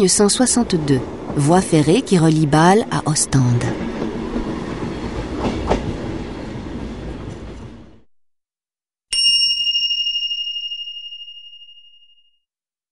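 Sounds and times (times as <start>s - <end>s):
train rumbling and clattering: 0.0s - 8.0s
high chime ringing: 9.1s - 12.4s.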